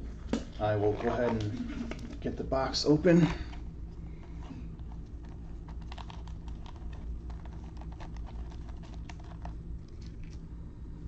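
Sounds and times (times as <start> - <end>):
low steady hum: 0.0 - 11.0
shrink-wrapped box crackling: 4.4 - 10.3.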